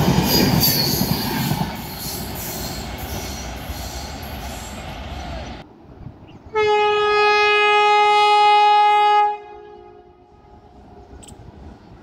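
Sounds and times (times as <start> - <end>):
train horn blast: 6.5 - 11.1.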